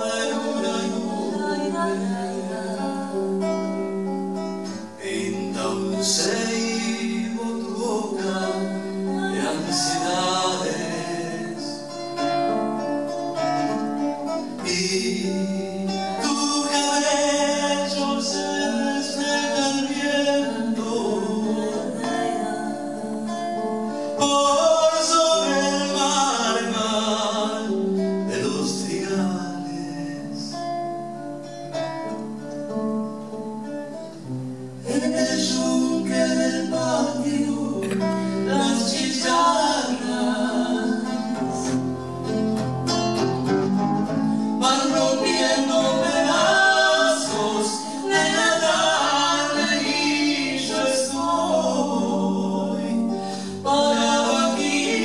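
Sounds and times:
man singing a folk song: 0.0 - 3.2, 4.6 - 12.6, 14.4 - 23.3, 23.9 - 31.0, 34.8 - 42.2, 44.2 - 55.0
guitar accompaniment: 0.0 - 55.0.

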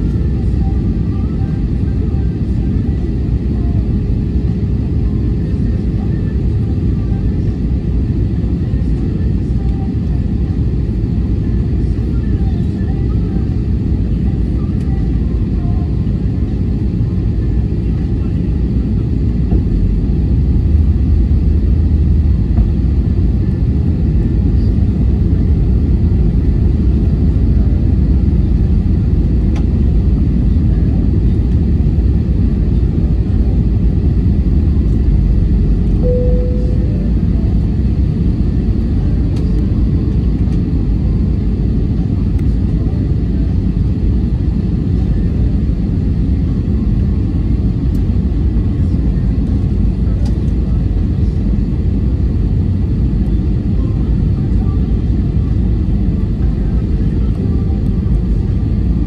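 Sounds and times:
airplane cabin engine rumble: 0.0 - 59.0
short high tone: 36.0 - 37.4.

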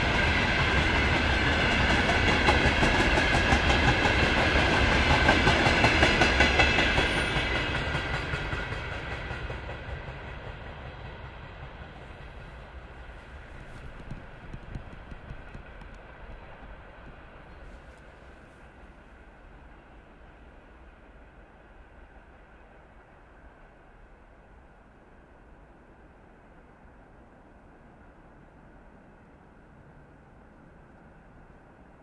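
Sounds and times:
train wheels clattering over rail joints: 0.3 - 18.1.

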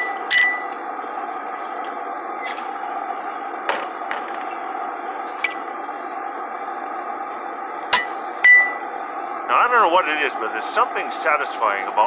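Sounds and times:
short metallic ring: 0.0 - 1.0, 7.9 - 8.8
steel tools clinking on anvil: 0.0 - 1.0.

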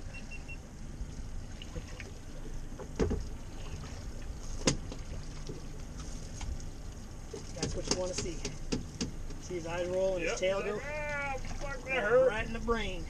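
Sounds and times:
water and wind noise: 0.0 - 13.0
knocks on boat deck: 2.8 - 3.2.

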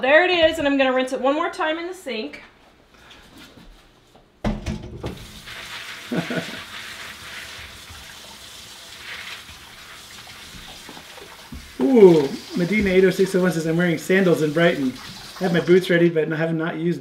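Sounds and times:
pipe knocks: 4.4 - 5.2
tap running over seeds: 10.5 - 13.3.

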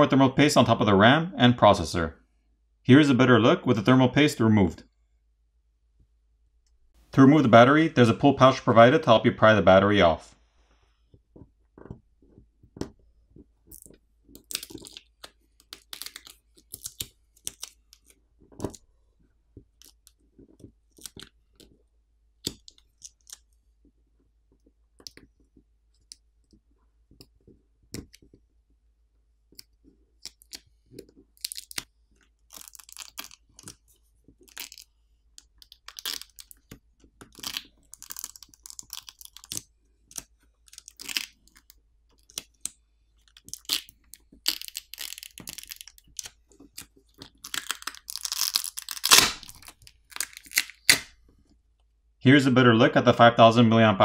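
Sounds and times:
adhesive tab peeling: 34.4 - 51.2.

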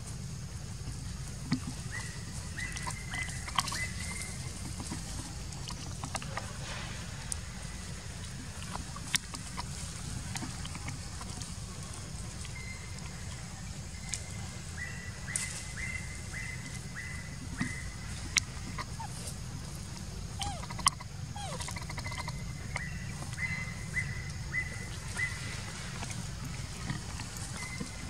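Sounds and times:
short high animal calls: 20.3 - 22.4.

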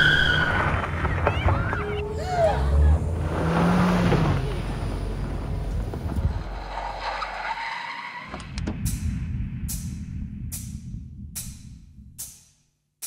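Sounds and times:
car tyres skidding: 0.0 - 8.5
car engine running: 2.6 - 6.8.

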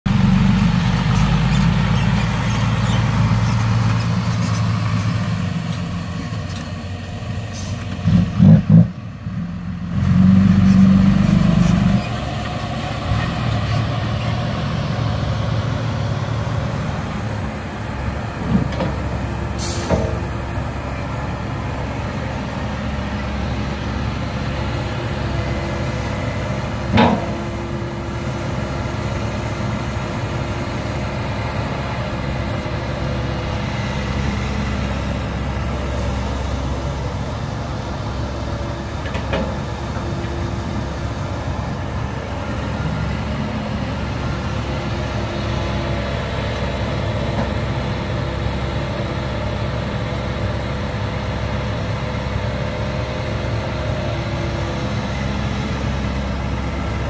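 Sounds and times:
dump truck engine: 0.1 - 57.0
excavator diesel engine working: 0.1 - 57.0.

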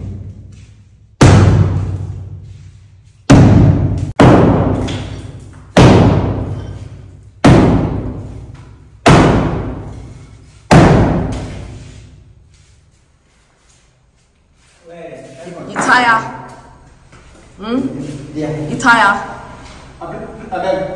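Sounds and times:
sledgehammer striking masonry wall: 1.2 - 2.4, 3.3 - 11.8.

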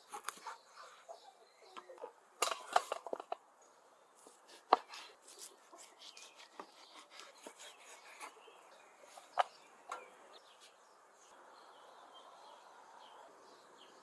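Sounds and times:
knife cutting on wooden board: 4.5 - 8.4.

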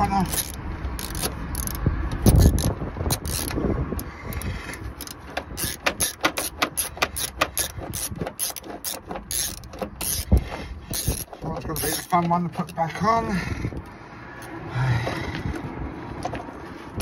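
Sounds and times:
socket ratchet clicking: 0.0 - 12.8.

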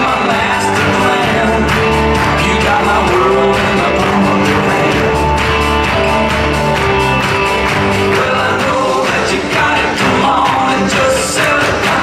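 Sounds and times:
loud dance music: 0.0 - 12.0.

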